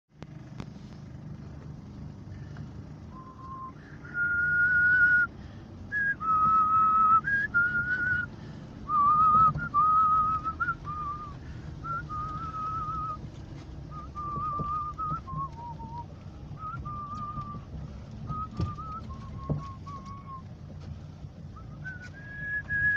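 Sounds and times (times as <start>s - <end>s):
vehicle rumble on dirt track: 0.1s - 22.9s
person whistling a tune: 3.1s - 5.3s, 5.9s - 8.3s, 8.9s - 13.2s, 13.9s - 17.6s, 18.3s - 20.5s, 21.6s - 22.9s.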